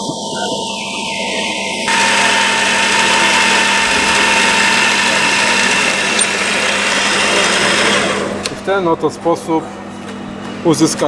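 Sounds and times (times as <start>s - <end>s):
lathe motor humming: 0.6s - 8.7s
cutting tool hissing: 1.9s - 8.5s.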